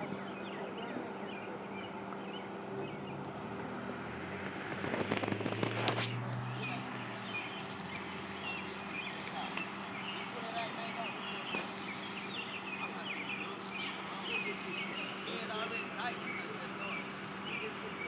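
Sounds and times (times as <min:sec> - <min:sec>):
steady low hum: 0:00.0 - 0:18.0
sharp crackling clicks: 0:04.3 - 0:08.3.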